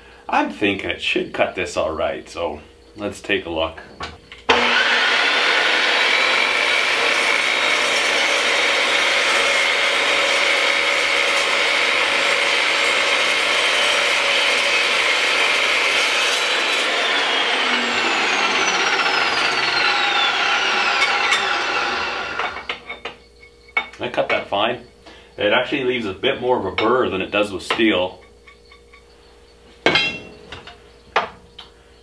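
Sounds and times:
saw motor winding down: 4.5 - 23.0
chop saw whining through metal: 4.5 - 23.9.

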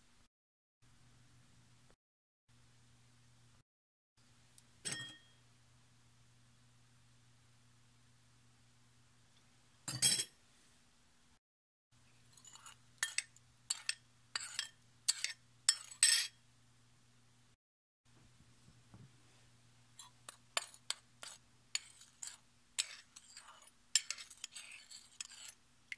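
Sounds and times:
faint steady hum: 0.8 - 3.6, 4.2 - 11.4, 12.0 - 25.9
spoon clinking against bowl: 4.9 - 5.3, 12.4 - 16.3.

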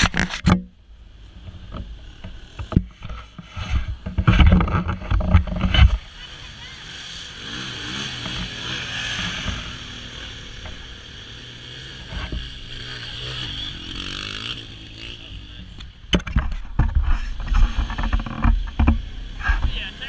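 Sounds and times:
loud thumps and buffeting: 1.4 - 6.0, 16.0 - 19.9
engine revving: 4.3 - 20.0.

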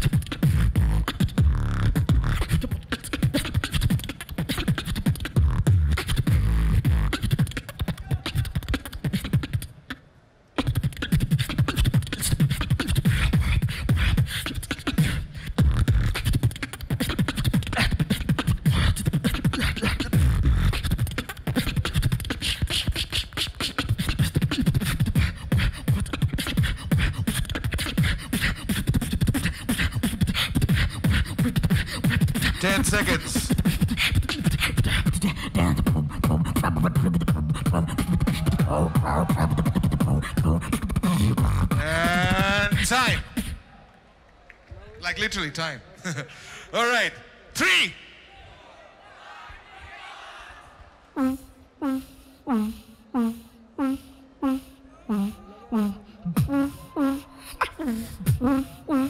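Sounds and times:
person beatboxing into microphone: 0.0 - 43.7, 51.2 - 59.0.

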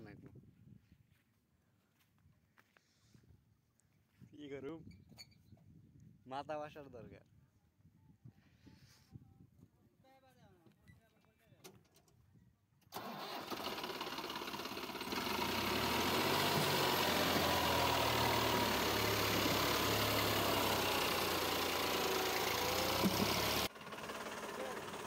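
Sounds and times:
tractor diesel engine running: 13.0 - 25.0.

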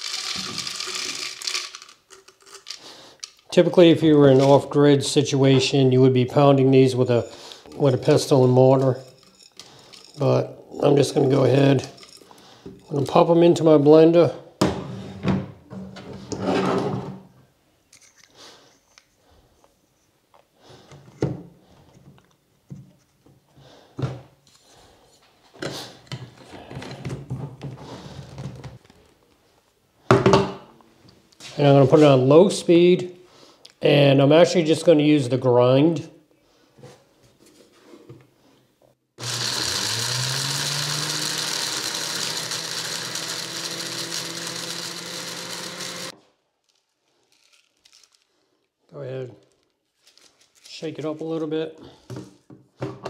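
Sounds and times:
blender motor grinding: 0.0 - 1.8, 39.2 - 46.2.

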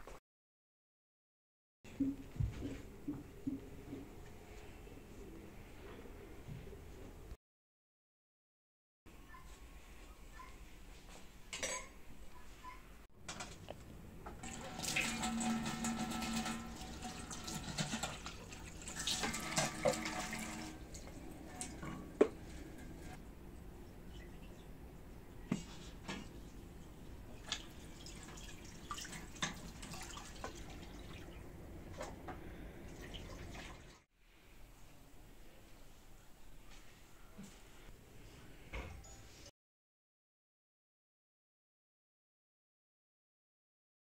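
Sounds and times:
tap water running into sink: 14.3 - 23.2, 27.4 - 31.1.

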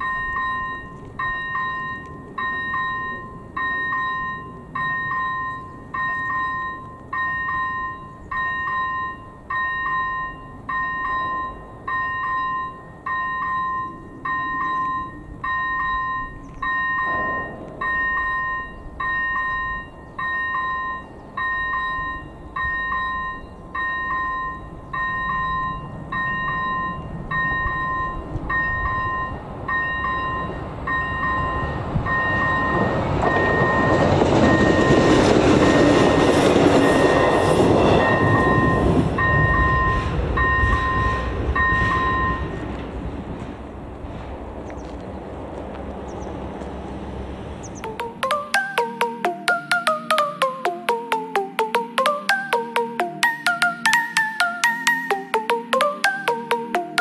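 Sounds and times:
level crossing bell dinging: 0.0 - 17.3, 47.8 - 57.0
train rumble: 25.5 - 47.8.

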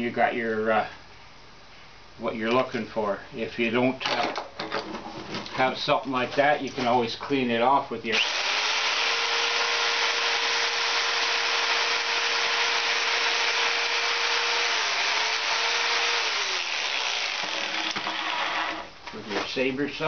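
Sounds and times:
jigsaw cutting metal fins: 8.1 - 18.9.

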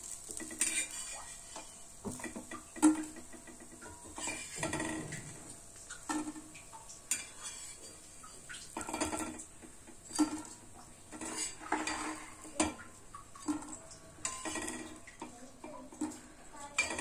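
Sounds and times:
metal spatula scraping pan: 0.0 - 12.8, 13.4 - 17.0
spatula clinking on ceramic plate: 13.5 - 15.0.

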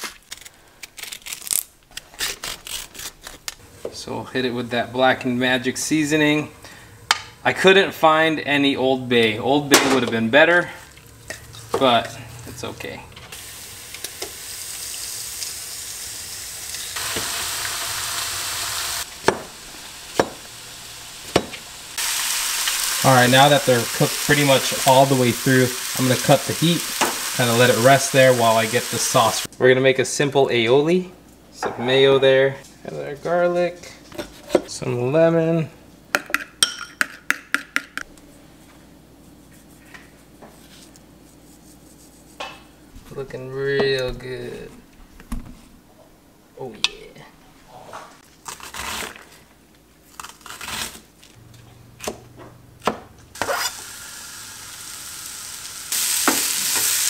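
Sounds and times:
fish fillets sizzling in pan: 13.4 - 29.5, 53.4 - 57.0.

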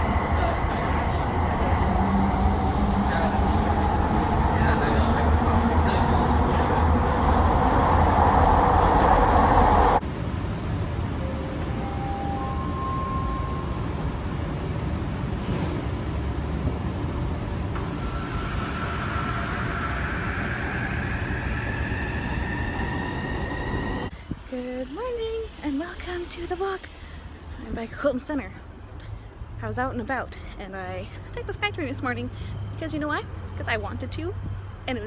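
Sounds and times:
whine rising in pitch: 0.0 - 10.0, 11.1 - 14.4, 17.6 - 26.6
train rolling rumble: 0.0 - 35.0.

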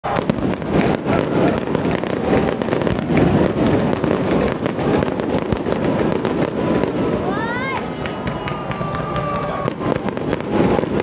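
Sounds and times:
fireworks crackling pops: 0.0 - 11.0.

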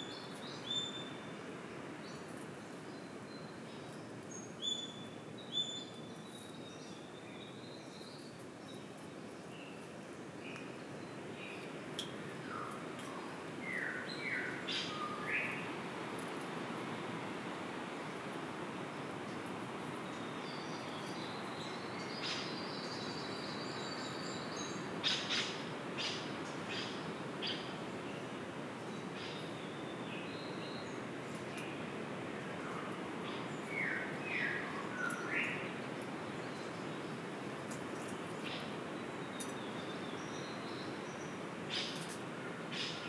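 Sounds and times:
steady background hiss: 0.0 - 43.0
bird calls: 20.0 - 27.8, 38.0 - 43.0.

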